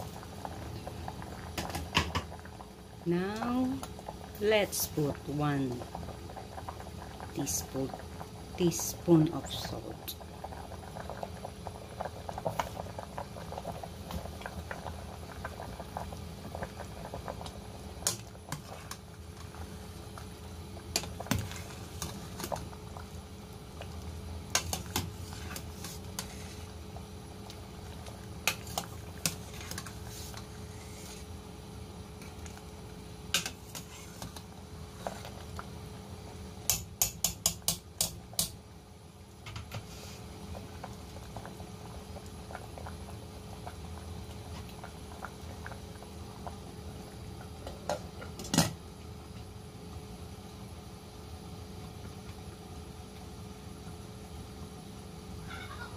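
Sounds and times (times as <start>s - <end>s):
soup bubbling in a pot: 0.0s - 55.9s.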